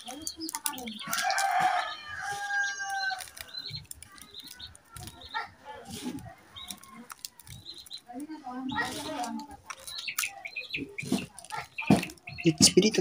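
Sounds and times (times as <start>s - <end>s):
rooster crowing: 1.2s - 3.3s.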